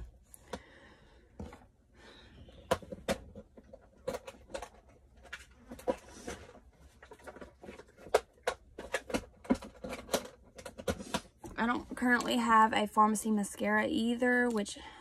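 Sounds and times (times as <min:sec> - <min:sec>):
makeup items clicking and knocking: 0:02.5 - 0:12.4.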